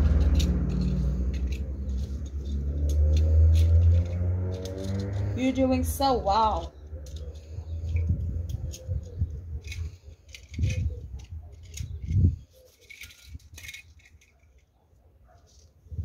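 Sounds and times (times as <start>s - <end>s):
low rumble: 0.0s - 5.8s
toy cars clinking on brick paving: 0.0s - 15.9s.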